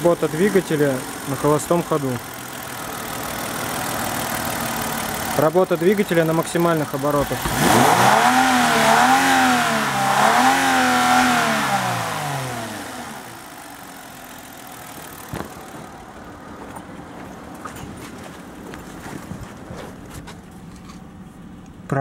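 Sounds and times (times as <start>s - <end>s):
car engine revving: 0.0s - 16.3s.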